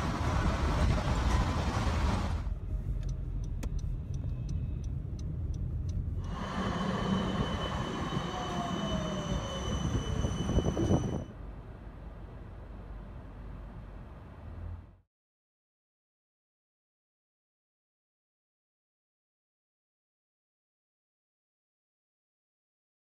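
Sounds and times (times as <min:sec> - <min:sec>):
tram electric drive whine: 0:00.0 - 0:03.6, 0:04.2 - 0:13.8
passing tram rumble: 0:00.0 - 0:15.0
street traffic: 0:00.0 - 0:15.0
light ticks: 0:02.9 - 0:06.3.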